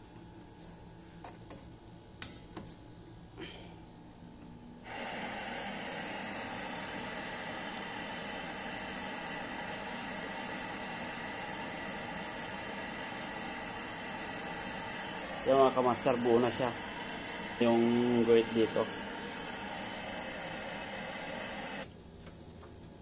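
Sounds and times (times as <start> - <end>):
television static hiss: 4.8 - 21.8.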